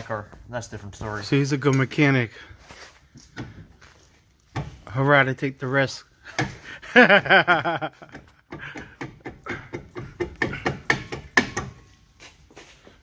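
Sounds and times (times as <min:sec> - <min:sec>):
metal clunks and knocks: 0:03.2 - 0:03.8, 0:04.5 - 0:04.9, 0:06.3 - 0:06.7, 0:07.9 - 0:11.9.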